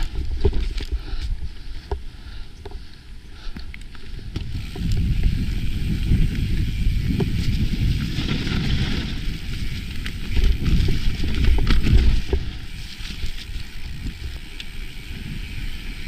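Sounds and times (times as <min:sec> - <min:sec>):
bike clicks and rattles: 0:00.0 - 0:16.0
wind rumble on microphone: 0:03.8 - 0:16.0
tyres rolling over dirt: 0:04.3 - 0:16.0.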